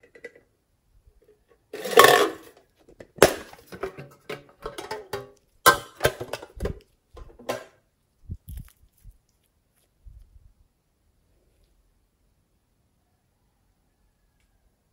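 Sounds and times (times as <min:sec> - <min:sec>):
tin box scraping rattle: 0:01.8 - 0:02.6.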